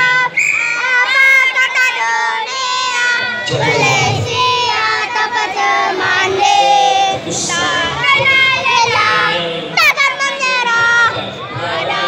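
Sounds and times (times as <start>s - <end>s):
crowd shouting and cheering: 0.0s - 12.0s.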